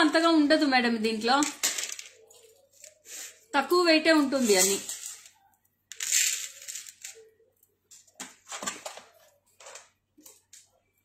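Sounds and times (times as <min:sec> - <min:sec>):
jewellery rustling: 0:01.2 - 0:11.0
jewellery clinking and knocking: 0:01.3 - 0:03.0, 0:04.2 - 0:07.3.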